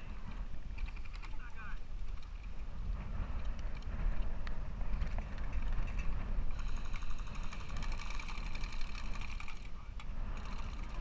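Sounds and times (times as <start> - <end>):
wind buffeting microphone: 0.0 - 11.0
rapid mechanical buzz and whine: 2.9 - 11.0.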